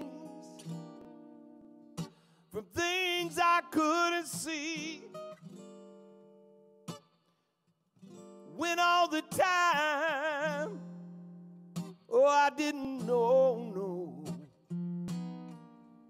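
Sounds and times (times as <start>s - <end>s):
man singing: 0.0s - 0.8s, 2.5s - 5.2s, 8.5s - 11.0s, 12.1s - 14.4s
acoustic guitar plucking: 0.0s - 16.0s.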